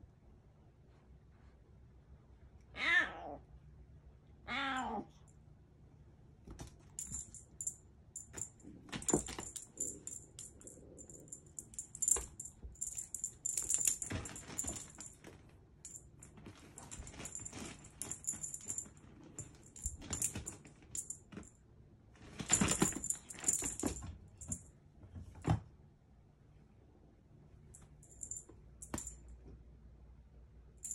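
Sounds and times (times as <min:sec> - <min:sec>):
cat toy jingling and rattling: 0:07.0 - 0:21.5, 0:22.4 - 0:24.6, 0:28.0 - 0:29.2.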